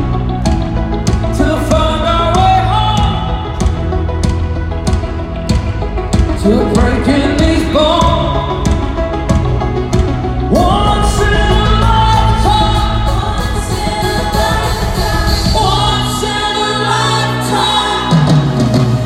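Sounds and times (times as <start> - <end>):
live rock band playing: 0.0 - 19.0
man singing long notes: 10.5 - 18.6.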